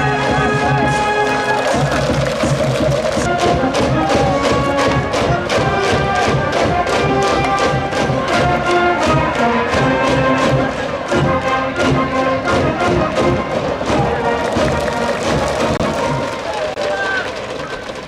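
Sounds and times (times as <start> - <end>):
quick steady drumbeat: 0.0 - 16.4
brass music: 0.0 - 16.6.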